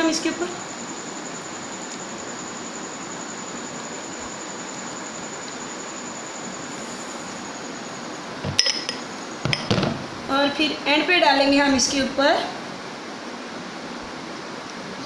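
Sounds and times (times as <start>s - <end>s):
thin high-pitched whine: 0.0s - 10.4s
steady hiss: 0.0s - 10.5s.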